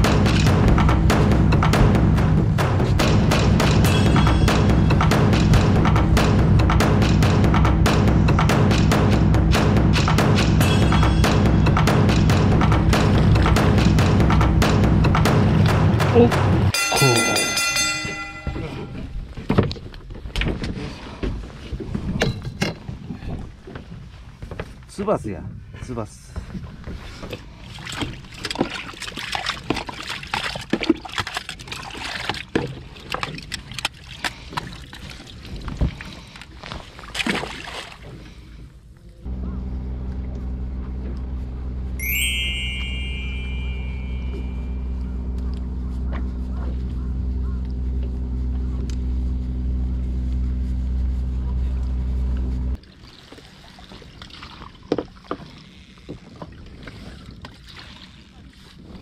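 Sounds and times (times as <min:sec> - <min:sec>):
knocks and clatter on boat: 0:00.0 - 0:25.0, 0:26.3 - 0:36.4, 0:53.2 - 0:59.0
water trickling and sloshing: 0:26.3 - 0:38.8, 0:52.7 - 0:59.0
boat engine droning: 0:38.4 - 0:52.8.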